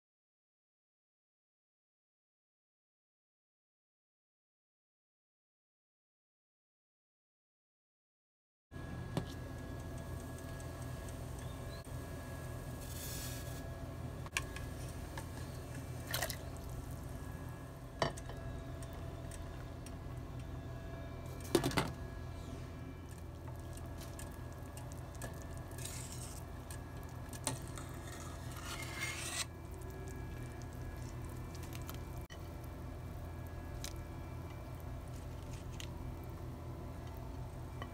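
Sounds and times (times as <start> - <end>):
steady low hum: 8.8 - 37.9.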